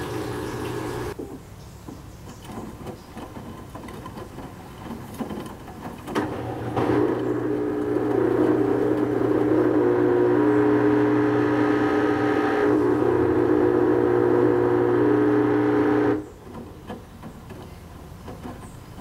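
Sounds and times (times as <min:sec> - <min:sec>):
washing machine humming: 0:00.0 - 0:01.2, 0:06.0 - 0:17.6.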